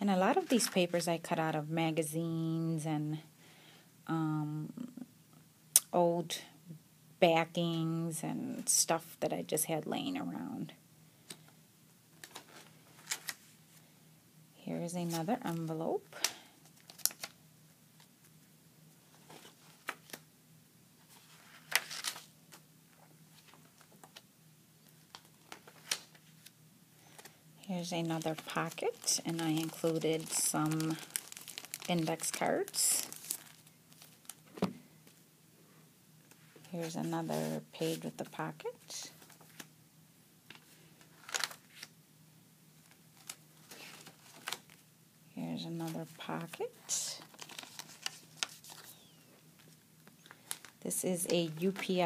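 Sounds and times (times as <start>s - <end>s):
faint low hum: 0.0s - 52.0s
paper pages turning: 12.2s - 13.5s, 16.2s - 17.4s, 19.1s - 20.2s, 21.0s - 24.2s, 24.9s - 27.4s, 28.0s - 34.5s, 36.9s - 38.2s, 40.5s - 41.9s, 42.8s - 44.8s, 47.2s - 52.0s.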